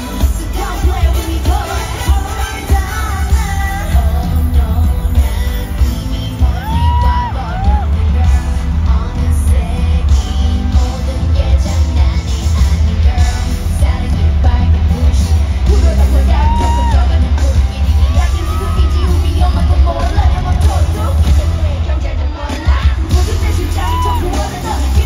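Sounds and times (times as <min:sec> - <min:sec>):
heavy bass backing music: 0:00.0 - 0:25.0
women singing into microphones: 0:00.0 - 0:25.0
fans yelling: 0:06.2 - 0:12.0, 0:15.5 - 0:25.0.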